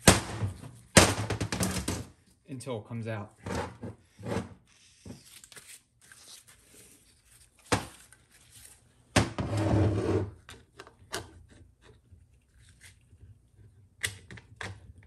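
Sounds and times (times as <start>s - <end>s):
metal scraping on bench: 9.4s - 10.3s.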